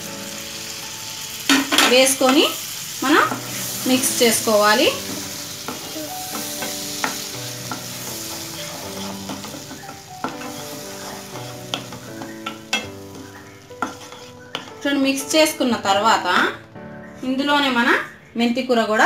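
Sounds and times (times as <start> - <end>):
onion masala sizzling: 0.0 - 16.4
spatula stirring in a pan: 3.2 - 14.9
spatula knocking against pan: 5.7 - 14.7.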